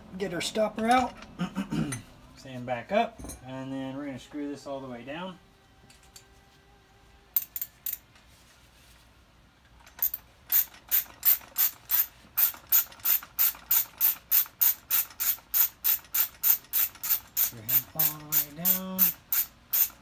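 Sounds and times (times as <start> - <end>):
socket ratchet clicking: 9.8 - 20.0.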